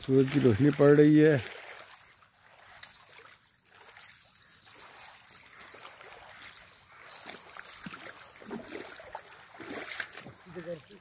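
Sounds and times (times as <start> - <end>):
small waves lapping: 0.0 - 11.0.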